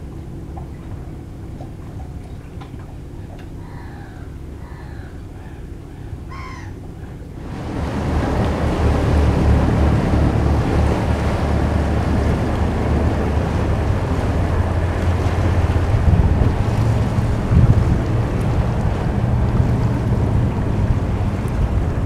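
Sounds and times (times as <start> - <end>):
motorboat engines droning: 0.0 - 22.0
wind on microphone: 7.0 - 22.0.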